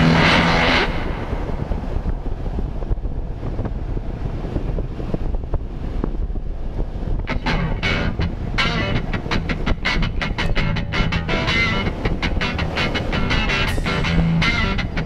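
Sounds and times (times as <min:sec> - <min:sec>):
low steady rumble: 0:00.0 - 0:15.0
wind buffeting microphone: 0:00.0 - 0:15.0
background music: 0:07.3 - 0:15.0.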